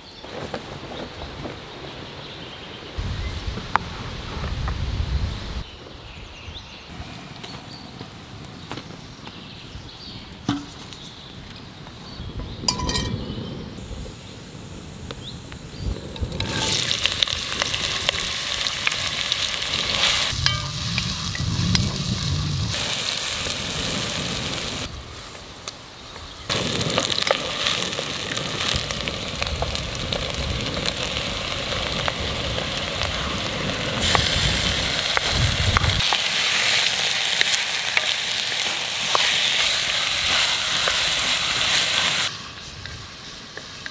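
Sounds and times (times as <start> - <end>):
onions sizzling in oil: 13.8 - 43.9.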